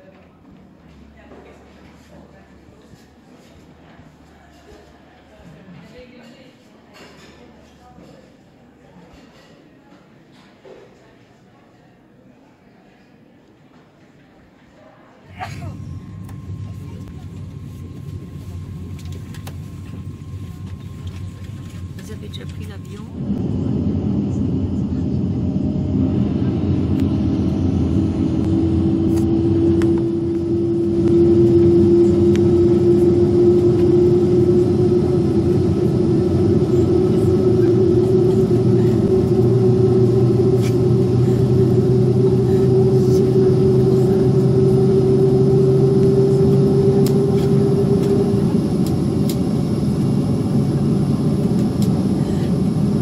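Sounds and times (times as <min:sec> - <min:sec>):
jet engines rumbling: 0:15.3 - 0:53.0.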